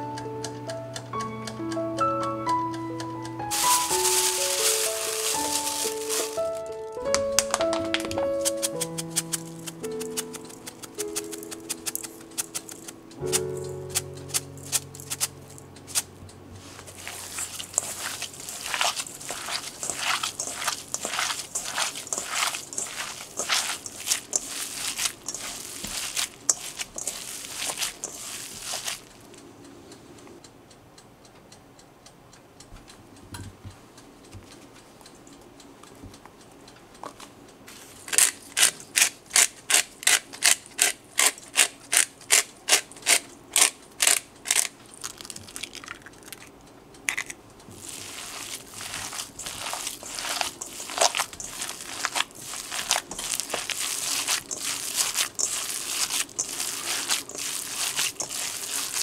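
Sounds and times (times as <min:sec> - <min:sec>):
pepper grinder clicking: 0:03.5 - 0:16.1, 0:38.1 - 0:46.5, 0:47.1 - 0:47.4
hands kneading raw meat: 0:03.5 - 0:29.3, 0:37.7 - 0:46.4, 0:47.7 - 0:59.0.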